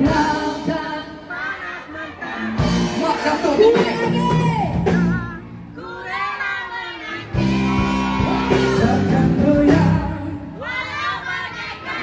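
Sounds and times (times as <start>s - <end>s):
woman singing slow song: 0.0s - 2.2s, 8.6s - 11.4s
live band music: 0.0s - 6.0s, 7.0s - 11.1s.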